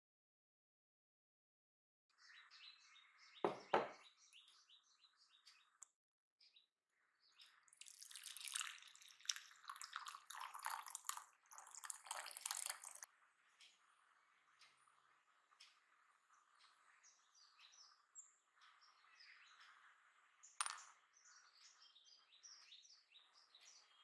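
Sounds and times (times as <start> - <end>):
birds chirping: 2.1 - 24.0
sharp knocks: 3.5 - 4.0
hot water pouring into bowl: 7.7 - 13.1.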